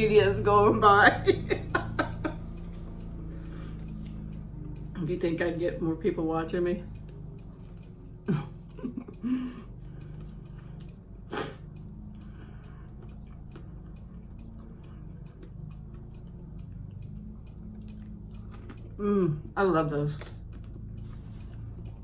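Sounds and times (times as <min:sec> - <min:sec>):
steady low hum: 0:00.0 - 0:22.0
quiet chewing: 0:01.6 - 0:05.0, 0:06.8 - 0:22.0.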